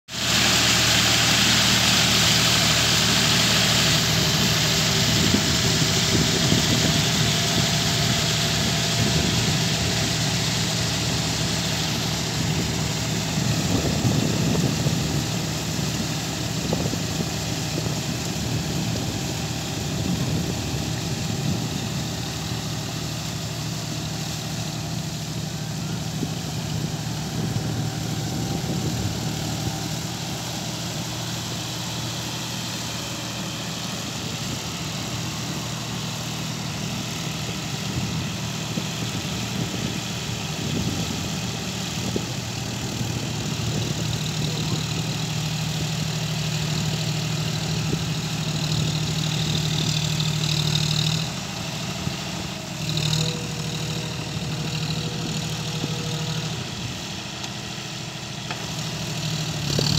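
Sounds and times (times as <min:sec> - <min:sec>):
tractor diesel engine running: 0:00.1 - 0:59.9.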